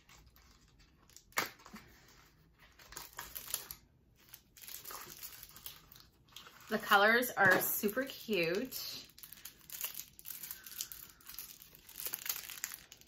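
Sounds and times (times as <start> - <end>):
packaging rustling: 0.0 - 13.0.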